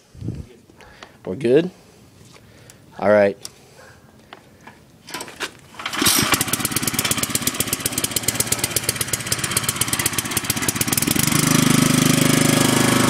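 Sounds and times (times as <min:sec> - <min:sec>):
small engine running: 0:05.8 - 0:13.0.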